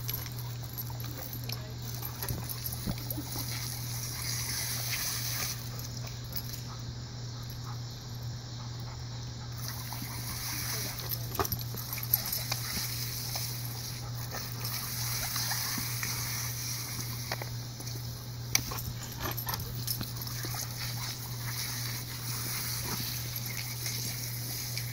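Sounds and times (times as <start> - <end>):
lawn sprinkler hissing: 0.0 - 24.9
dog snapping and splashing: 18.6 - 24.9.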